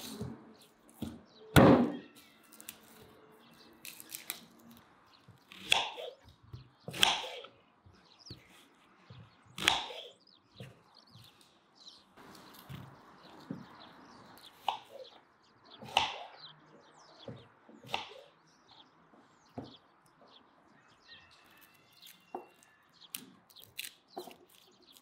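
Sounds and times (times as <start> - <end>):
knife chopping on wooden board: 5.5 - 7.5, 9.6 - 10.8.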